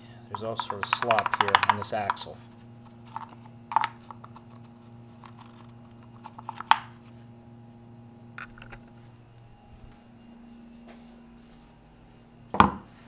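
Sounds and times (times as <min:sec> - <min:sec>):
faint steady hum: 0:00.0 - 0:13.0
plastic wheel clicking on axle: 0:00.6 - 0:02.2.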